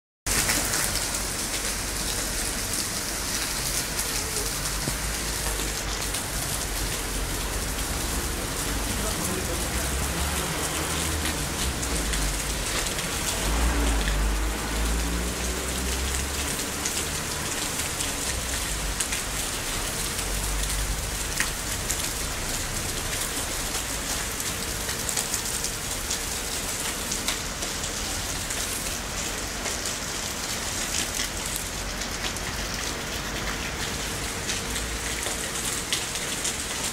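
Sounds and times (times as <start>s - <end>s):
rain pattering on surfaces: 0.3s - 36.9s.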